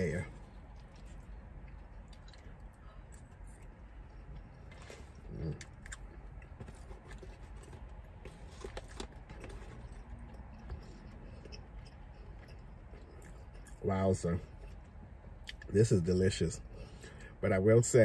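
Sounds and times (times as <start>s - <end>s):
chewing: 0.3s - 13.8s.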